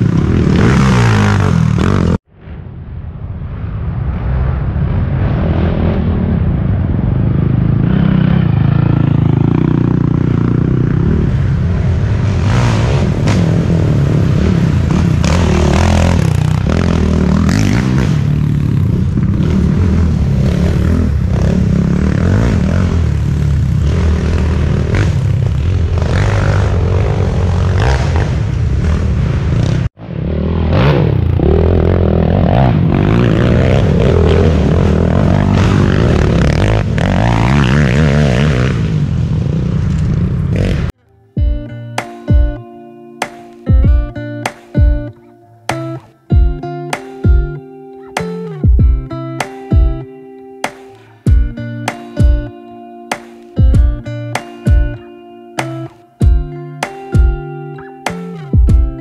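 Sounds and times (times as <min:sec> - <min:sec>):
quad engine revving: 0:00.0 - 0:02.2, 0:07.4 - 0:41.0.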